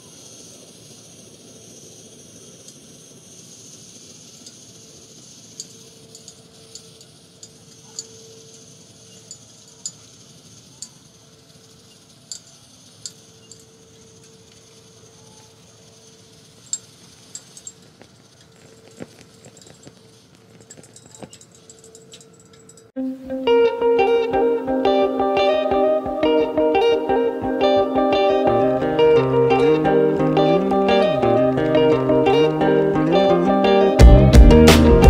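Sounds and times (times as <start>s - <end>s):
faint high hiss: 0.0s - 21.5s, 22.9s - 34.0s
cooling metal ticking and pinging: 0.0s - 23.0s.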